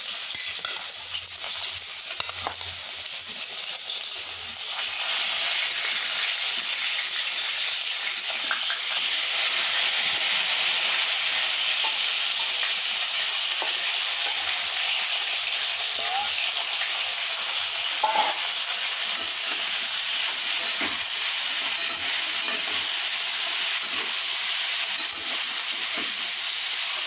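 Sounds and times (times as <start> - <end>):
chicken sizzling in hot oil: 0.0 - 27.0.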